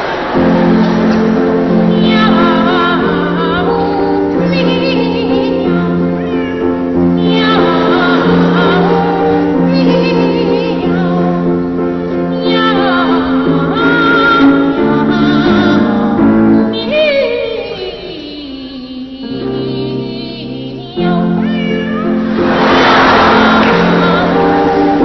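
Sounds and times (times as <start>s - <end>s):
children's choir meowing: 0.0s - 11.8s, 21.2s - 25.0s.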